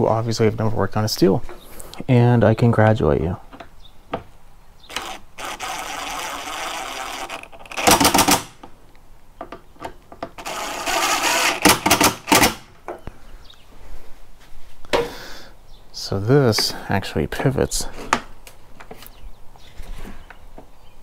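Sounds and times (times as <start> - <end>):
power driver driving screws: 4.9 - 8.7, 10.3 - 12.8.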